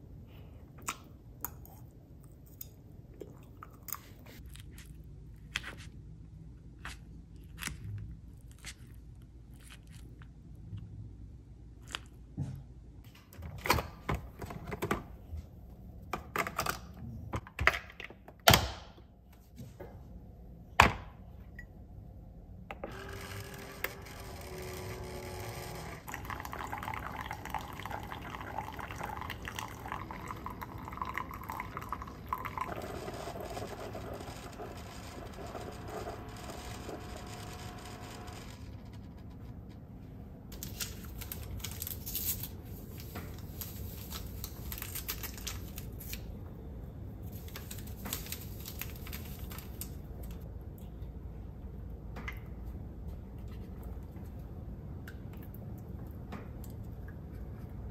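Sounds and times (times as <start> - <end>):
coffee maker pumping: 22.9 - 38.7.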